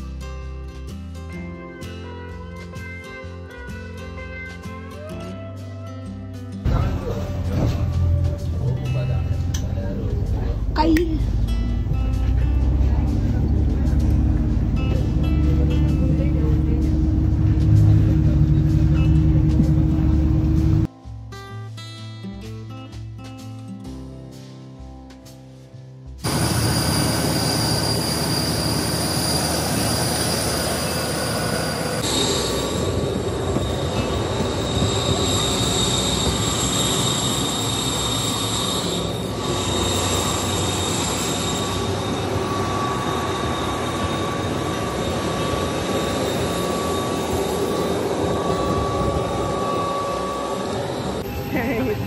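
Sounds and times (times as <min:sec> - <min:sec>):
high turbine whine: 0:11.4 - 0:20.9, 0:26.2 - 0:52.0
jet engine rushing roar: 0:26.2 - 0:52.0.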